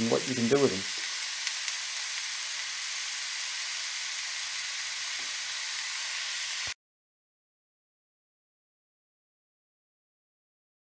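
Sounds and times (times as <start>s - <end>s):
food sizzling in oil: 0.0s - 6.8s.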